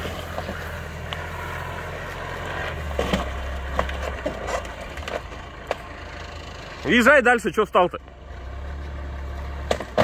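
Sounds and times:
vehicle engine running low: 0:00.0 - 0:10.0
wood cracking and splintering: 0:02.6 - 0:06.0, 0:09.5 - 0:10.0.

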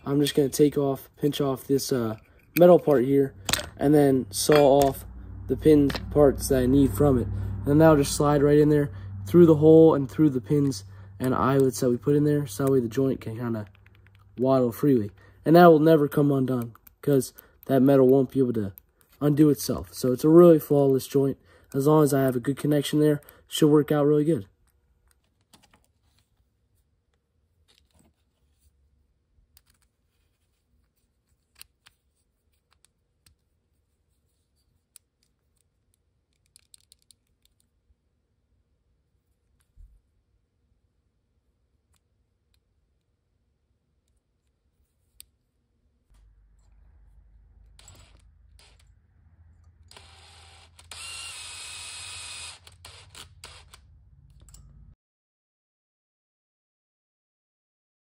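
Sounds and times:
small clicks and taps: 0:34.9 - 0:37.7
cordless drill whirring: 0:47.8 - 0:48.8, 0:49.9 - 0:53.8.

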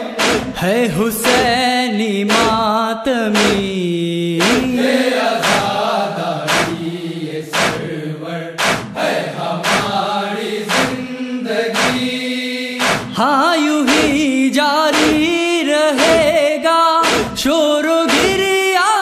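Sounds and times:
men chanting: 0:00.0 - 0:19.0
hands beating chests: 0:00.2 - 0:01.6, 0:02.3 - 0:02.7, 0:03.4 - 0:03.7, 0:04.4 - 0:04.7, 0:05.4 - 0:05.7, 0:06.5 - 0:06.8, 0:07.5 - 0:07.8, 0:08.6 - 0:09.0, 0:09.6 - 0:10.0, 0:10.7 - 0:11.0, 0:11.8 - 0:12.1, 0:12.8 - 0:13.2, 0:13.9 - 0:14.2, 0:14.9 - 0:15.4, 0:16.0 - 0:16.4, 0:17.0 - 0:17.5, 0:18.1 - 0:18.5.

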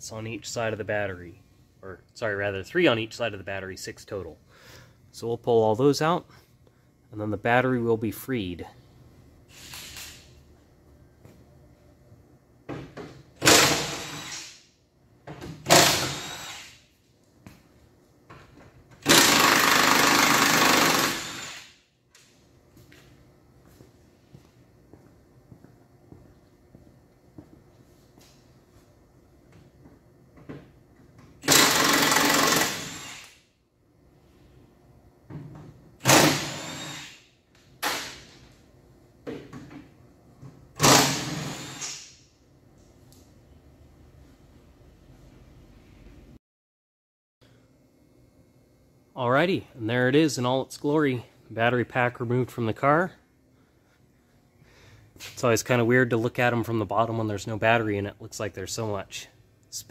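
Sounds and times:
impact wrench: 0:09.5 - 0:10.3, 0:13.4 - 0:14.7, 0:15.4 - 0:16.9, 0:19.0 - 0:21.8, 0:31.4 - 0:33.5, 0:36.0 - 0:38.5, 0:40.8 - 0:42.2.

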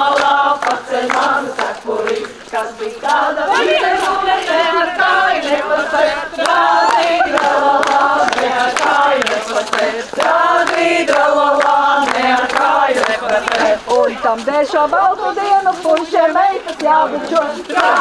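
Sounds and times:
women singing together: 0:00.0 - 0:18.0
hand claps: 0:06.4 - 0:13.6.

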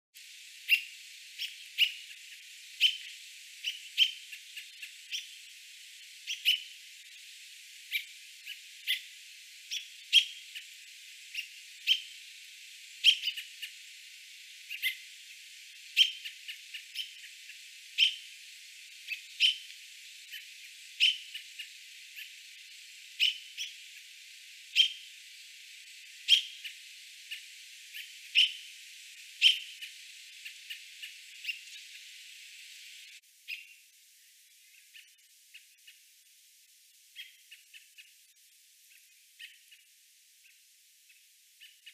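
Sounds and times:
bird sharp warning calls: 0:00.6 - 0:25.1, 0:25.8 - 0:33.8, 0:37.2 - 0:38.1.

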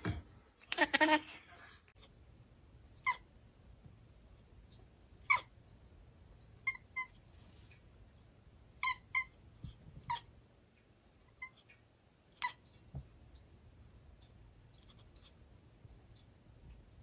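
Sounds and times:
cat chirping: 0:02.9 - 0:03.3, 0:04.7 - 0:05.7, 0:06.4 - 0:07.7, 0:08.8 - 0:10.3, 0:11.2 - 0:13.4, 0:14.6 - 0:15.4.

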